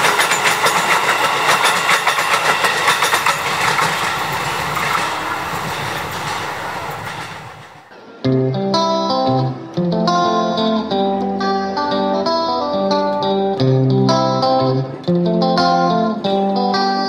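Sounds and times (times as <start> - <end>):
plucked guitar melody: 7.9 - 17.0.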